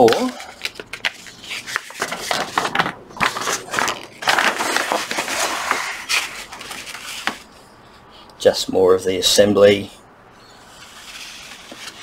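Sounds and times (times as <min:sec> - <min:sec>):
paper sheets rustling: 0:00.0 - 0:07.5, 0:10.8 - 0:12.0.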